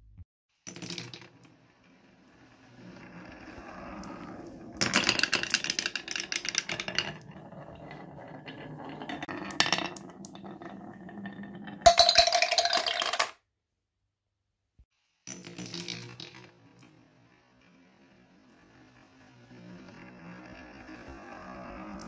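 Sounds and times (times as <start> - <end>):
marbles rolling on wooden run: 0.7 - 13.4, 15.3 - 22.0
marbles clattering: 2.3 - 13.4, 15.3 - 17.0, 18.6 - 22.0
marbles clicking: 11.9 - 13.3, 19.5 - 22.0
marbles dropping into box: 11.9 - 13.4.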